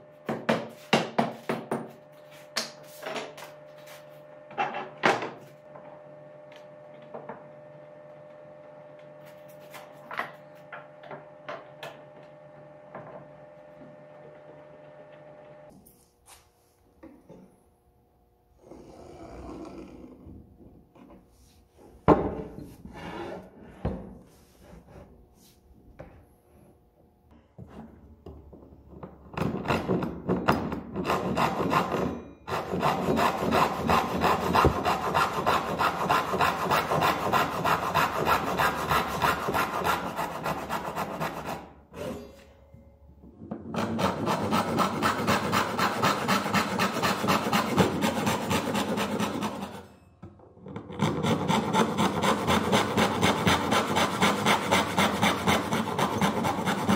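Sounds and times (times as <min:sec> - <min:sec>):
hand saw rasping through wood: 0:30.9 - 0:41.8, 0:43.7 - 0:49.9, 0:50.8 - 0:56.9.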